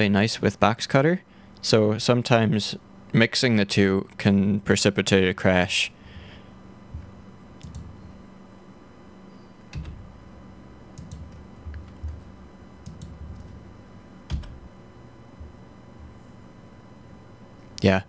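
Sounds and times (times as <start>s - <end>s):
keyboard and mouse clicks: 7.0s - 7.9s, 9.7s - 10.0s, 11.0s - 13.6s, 14.3s - 14.6s.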